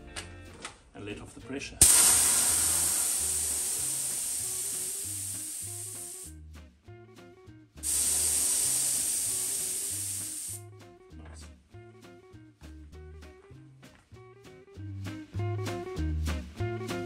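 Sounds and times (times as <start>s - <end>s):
compressed air hissing: 1.8s - 6.3s, 7.8s - 10.6s.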